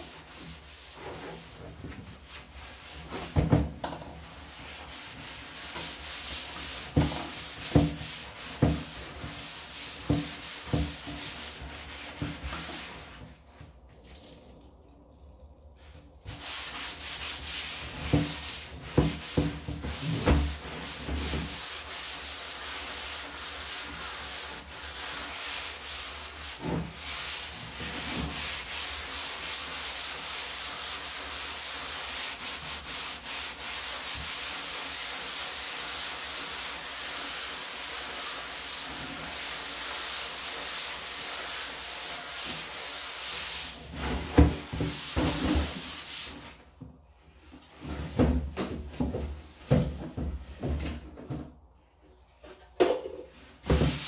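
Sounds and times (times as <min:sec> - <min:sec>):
rubbing scrub on plastic bin: 0:00.0 - 0:14.6, 0:15.8 - 0:51.6, 0:52.2 - 0:54.0.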